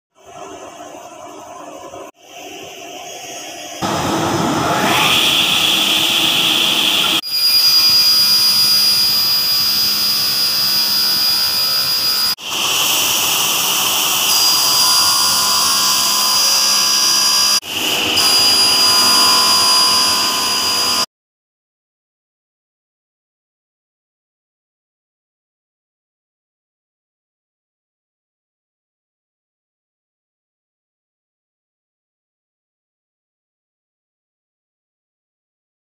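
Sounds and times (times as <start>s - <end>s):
table saw cutting board: 0.2s - 21.1s.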